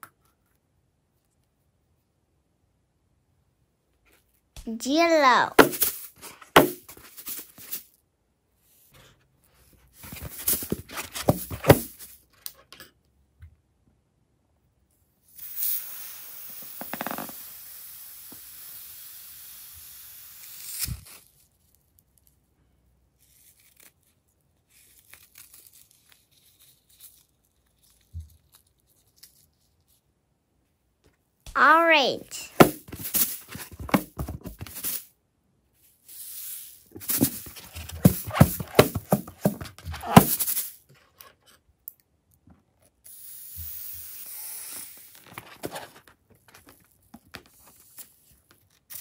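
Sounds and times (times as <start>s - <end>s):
rubber balloon crinkling: 5.5s - 7.8s, 16.8s - 17.4s, 32.4s - 35.0s, 36.9s - 40.7s
steady hiss: 15.4s - 20.9s, 43.1s - 45.2s.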